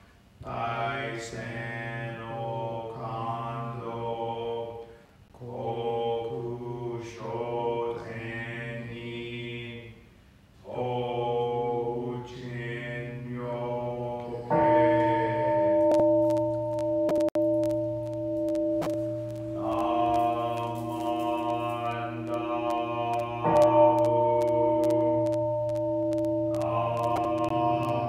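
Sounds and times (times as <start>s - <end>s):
man chanting: 0.4s - 10.0s, 10.7s - 15.8s, 19.6s - 25.1s, 26.5s - 28.0s
temple bell ringing: 14.5s - 17.1s.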